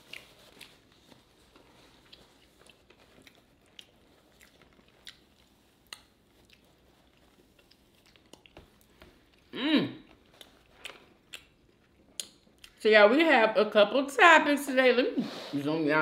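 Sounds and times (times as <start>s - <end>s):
faint chewing: 0.0s - 12.8s
soft mouth clicks: 12.2s - 12.8s.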